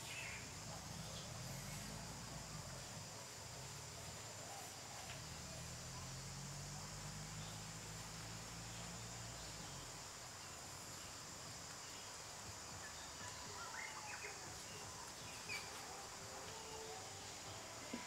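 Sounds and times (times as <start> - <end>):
faint chirps: 0.0 - 18.0.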